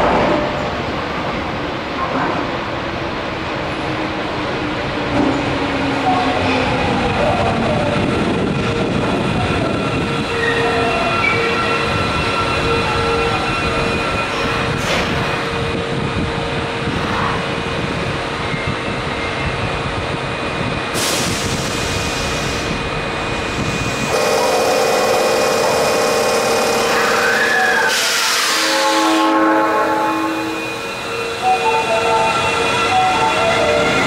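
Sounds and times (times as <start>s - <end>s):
metro train running hum: 0.0s - 34.0s
air hissing: 21.0s - 22.8s.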